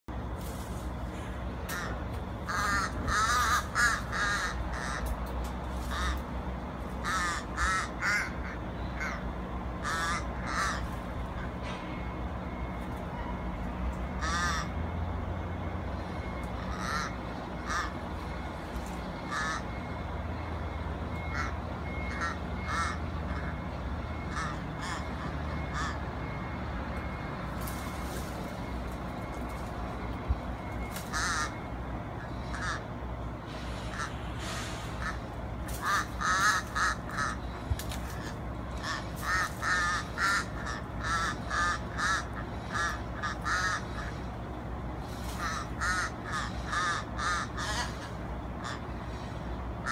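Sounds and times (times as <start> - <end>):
crow cawing: 1.7 - 5.2, 5.8 - 6.4, 7.0 - 11.0, 14.2 - 14.8, 16.3 - 18.0, 19.2 - 19.8, 21.2 - 26.1, 30.7 - 32.9, 33.9 - 34.2, 35.0 - 44.3, 45.1 - 49.9.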